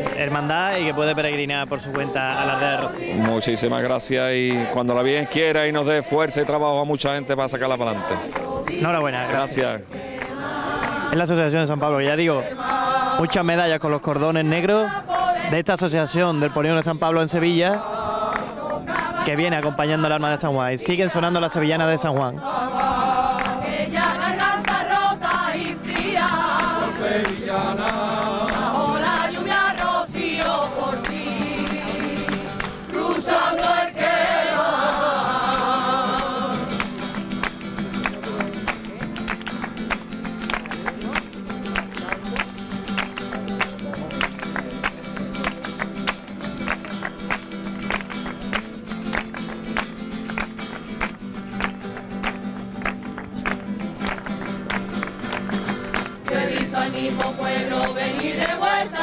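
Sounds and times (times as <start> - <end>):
group of voices singing: 0.0 - 39.5, 56.1 - 59.0
tambourine rhythm: 0.0 - 59.0.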